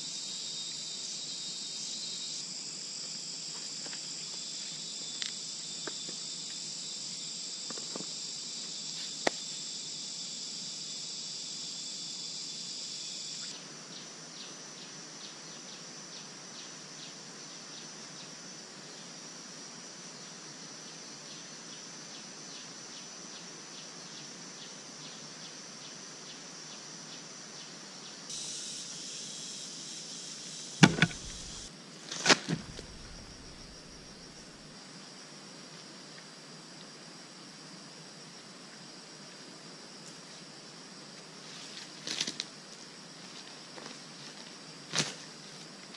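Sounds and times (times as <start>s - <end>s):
insects chirping: 0.0s - 45.9s
loud sharp thumps: 30.8s - 31.7s, 32.5s - 34.1s.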